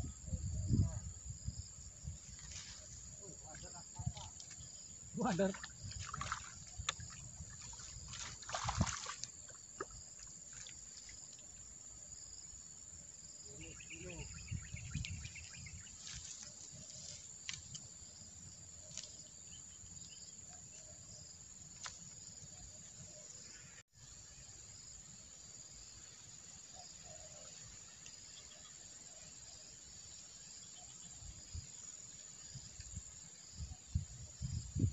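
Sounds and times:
insects droning: 0.0 - 34.9
faint chirps: 13.4 - 17.8.

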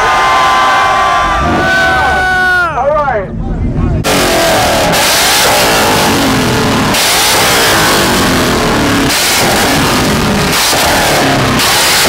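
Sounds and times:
car engine revving hard: 4.0 - 12.0
loud hissing noise: 4.0 - 12.0.

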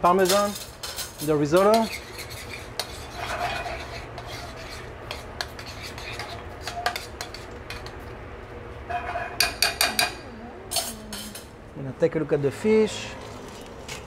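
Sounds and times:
spoon scraping and clinking pot: 0.2 - 8.0.

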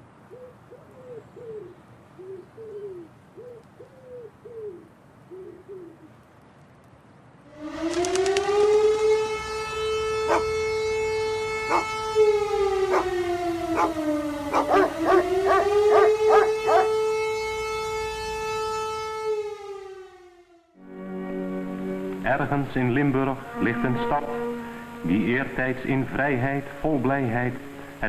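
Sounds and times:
air-raid siren wailing: 7.4 - 28.0.

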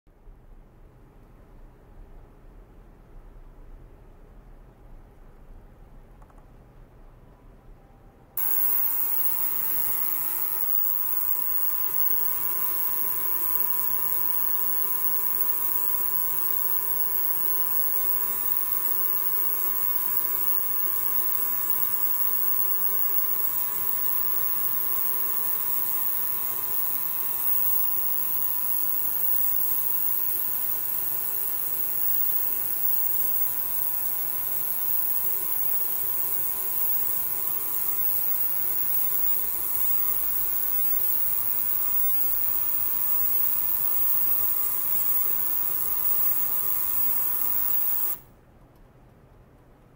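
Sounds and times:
ultrasonic cleaner humming: 8.4 - 48.3.

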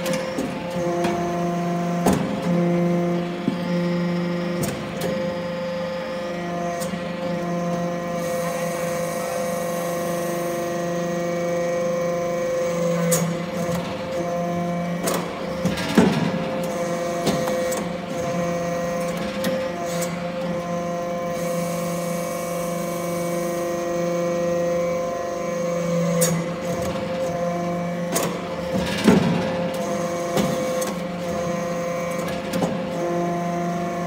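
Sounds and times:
hydraulic pump hum: 0.0 - 34.0.

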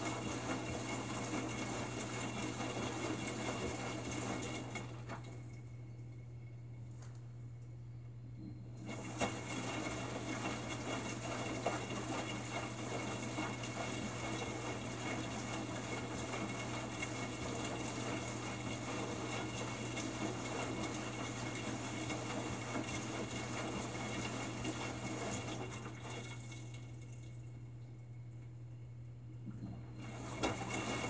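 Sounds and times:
washing machine drum tumbling: 0.0 - 5.6, 8.8 - 27.2, 29.7 - 31.0
water sloshing and splashing: 8.9 - 27.6, 29.4 - 31.0.

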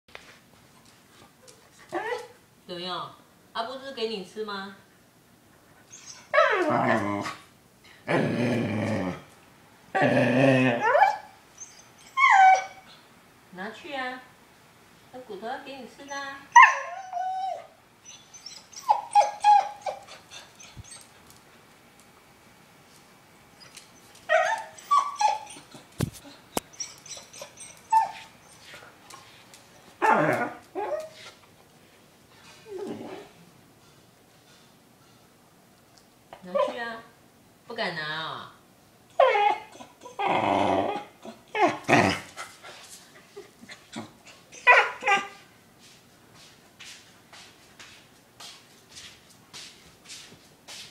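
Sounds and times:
dog whining cries: 5.9 - 7.4, 10.0 - 13.0, 16.5 - 21.1, 23.6 - 28.7, 30.0 - 31.2, 39.1 - 42.2, 43.9 - 45.4.

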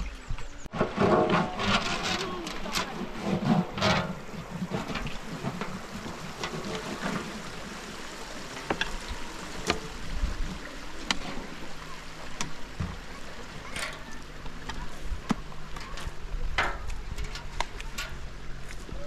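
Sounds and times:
hands scrubbing metal sieve: 0.8 - 9.8.

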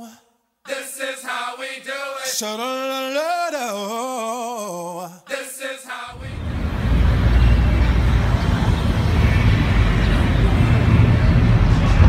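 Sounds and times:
person singing: 0.0 - 6.6.

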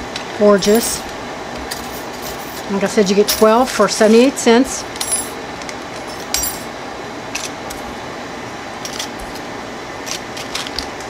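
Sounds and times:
small metal pieces clinking: 6.0 - 6.7, 8.8 - 9.4, 10.1 - 11.0.

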